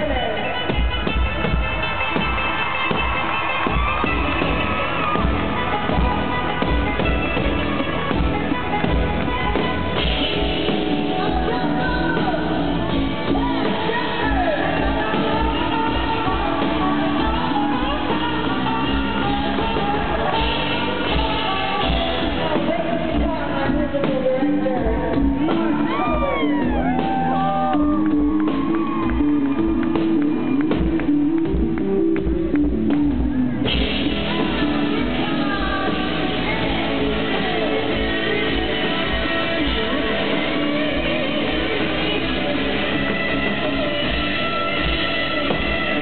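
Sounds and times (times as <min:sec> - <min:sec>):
drums beating: 0:00.0 - 0:46.0
electric bass guitar: 0:00.0 - 0:46.0
live country-rock band: 0:00.0 - 0:46.0
audience whooping: 0:01.8 - 0:07.9, 0:25.2 - 0:31.9
person singing: 0:04.4 - 0:29.7, 0:33.7 - 0:46.0.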